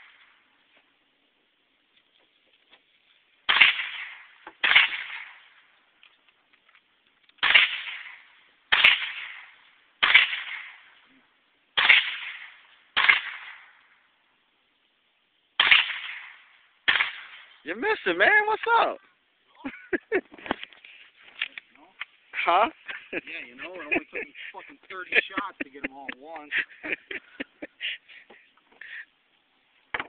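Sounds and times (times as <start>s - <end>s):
gunshots: 3.5s - 5.5s, 7.4s - 10.9s, 11.8s - 13.7s, 15.6s - 17.6s.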